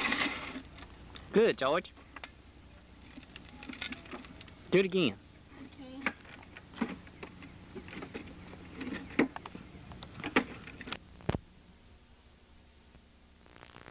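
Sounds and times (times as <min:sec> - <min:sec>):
plastic tricycle wheels rattling on bricks: 0:00.0 - 0:00.8, 0:03.0 - 0:04.5, 0:06.2 - 0:11.0
low steady hum: 0:00.0 - 0:13.9.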